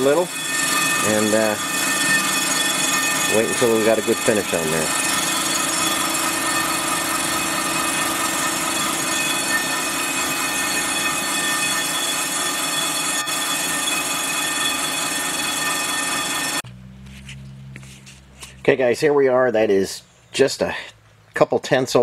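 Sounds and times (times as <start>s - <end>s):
machine whining tones: 0.0s - 17.7s
surfacing machine scraping: 0.0s - 18.7s.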